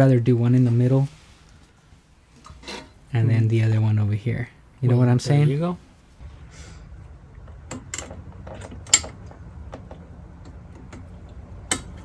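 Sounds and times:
low hum: 0:06.0 - 0:12.0.

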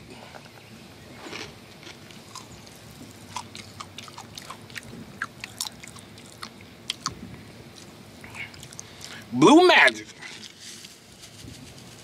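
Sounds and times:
quiet chewing: 0:01.2 - 0:09.3.

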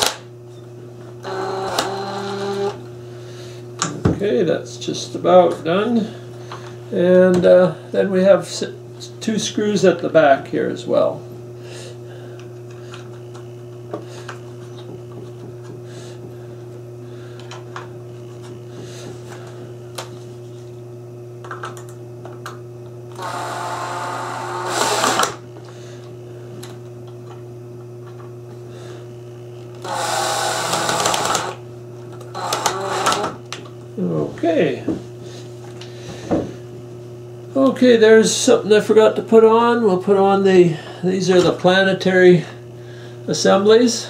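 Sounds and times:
cordless drill driving screws: 0:01.2 - 0:02.8, 0:23.2 - 0:25.4, 0:29.8 - 0:31.6, 0:32.3 - 0:33.3.

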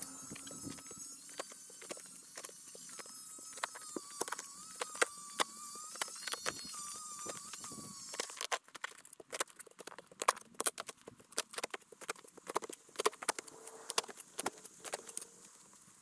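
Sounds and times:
thin wavering tone: 0:00.0 - 0:08.4.

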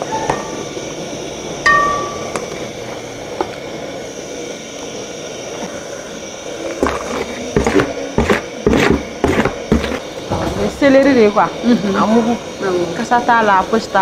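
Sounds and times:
metallic ring: 0:00.0 - 0:00.7, 0:01.6 - 0:02.6.

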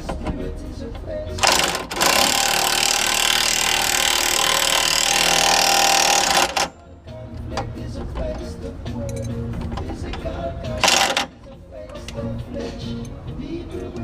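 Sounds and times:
cordless power drill running: 0:01.4 - 0:06.6.

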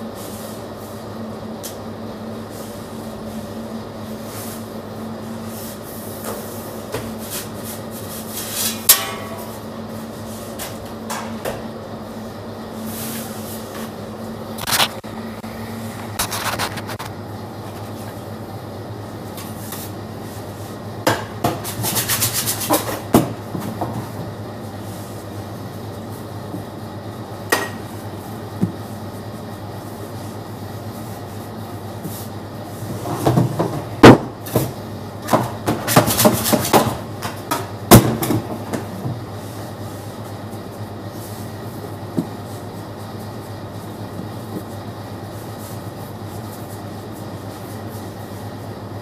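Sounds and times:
steady low hum: 0:00.0 - 0:49.0
metal oven tools clanking: 0:08.6 - 0:09.6.

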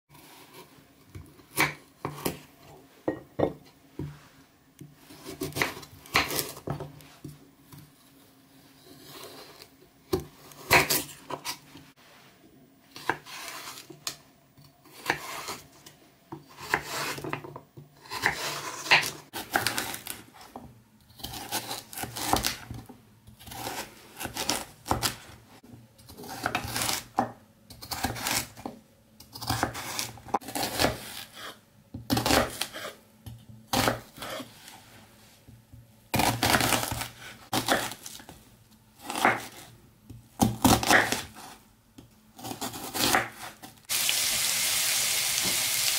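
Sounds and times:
knife chopping on wooden board: 0:36.2 - 0:38.0, 0:39.0 - 0:39.6, 0:40.4 - 0:41.5, 0:42.4 - 0:43.5.

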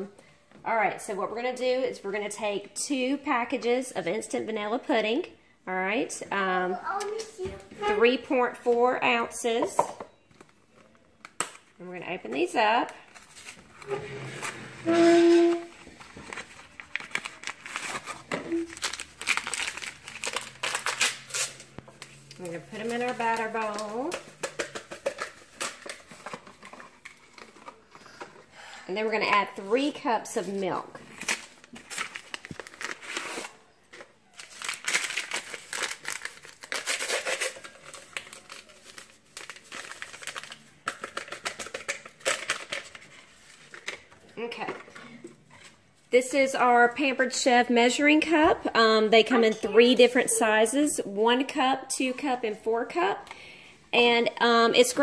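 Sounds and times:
paper pouches crinkling and tearing: 0:15.4 - 0:28.7, 0:31.0 - 0:44.3.

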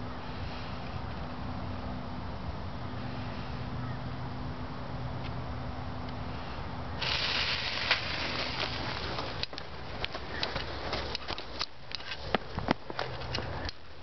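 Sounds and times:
sparkler fizzing and crackling: 0:07.0 - 0:10.1.

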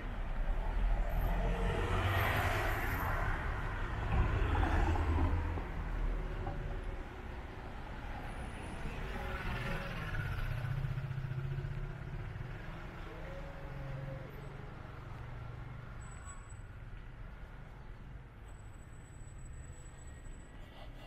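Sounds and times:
city street noise hum: 0:00.0 - 0:21.0.

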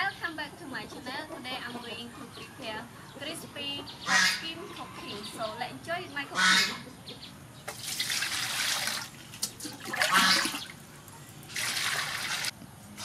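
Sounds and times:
water splashing into metal pot: 0:07.7 - 0:10.8.

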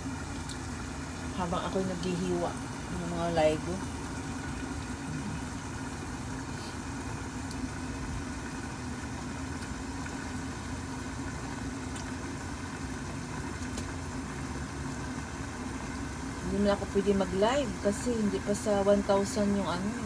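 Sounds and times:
kitchen appliance humming: 0:00.0 - 0:20.0.

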